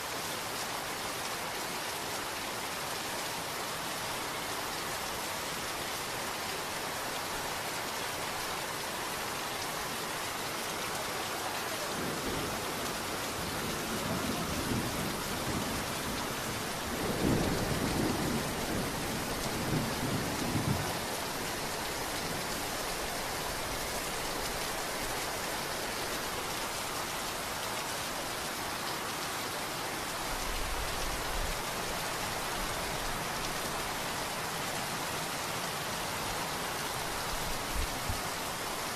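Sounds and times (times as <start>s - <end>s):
pouring rain: 0.0s - 38.9s
thunder rumbling: 13.5s - 20.9s.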